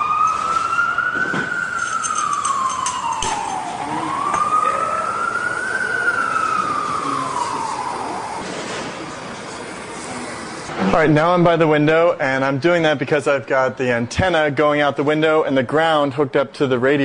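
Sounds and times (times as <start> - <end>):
siren wailing: 0.0 - 8.4.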